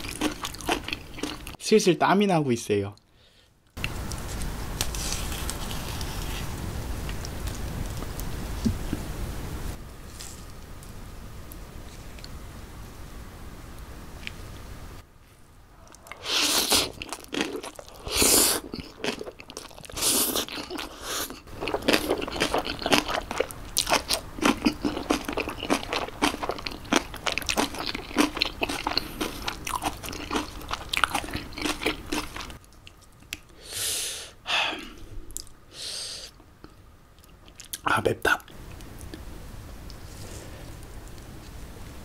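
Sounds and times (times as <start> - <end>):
crunchy chewing: 0.0 - 1.6, 3.8 - 9.0, 15.8 - 33.6
noodle slurping: 15.9 - 19.2.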